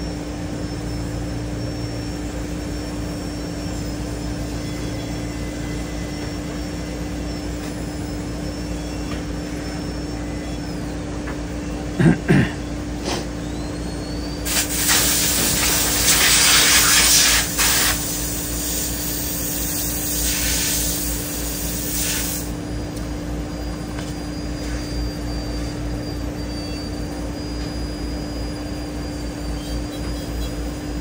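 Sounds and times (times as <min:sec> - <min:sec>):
faint high whine: 0:00.0 - 0:31.0
machine hum: 0:00.0 - 0:31.0
loud hissing: 0:14.4 - 0:22.5.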